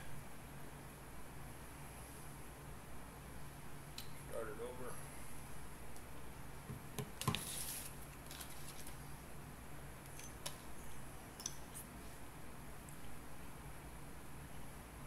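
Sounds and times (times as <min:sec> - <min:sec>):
wrapper clicking and crinkling: 0:08.1 - 0:09.0.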